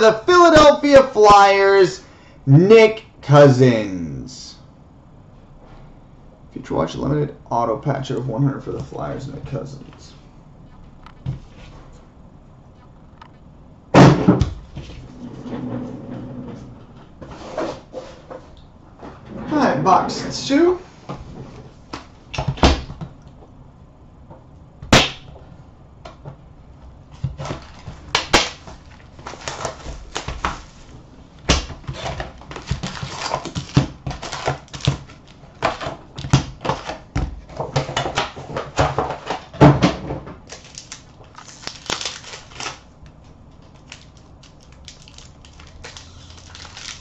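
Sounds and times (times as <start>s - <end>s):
foil packs crinkling: 27.3s - 39.3s, 40.4s - 47.0s.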